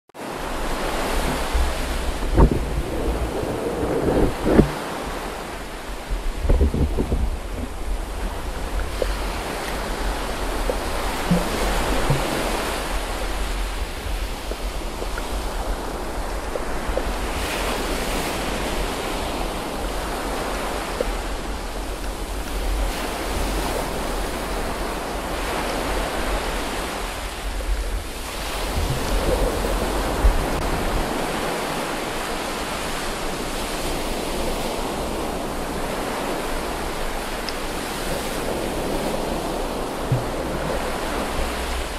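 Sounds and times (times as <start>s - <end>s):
underwater rushing hiss: 0.4s - 20.8s
low underwater rumble: 1.2s - 5.2s, 6.0s - 15.8s, 39.9s - 41.8s.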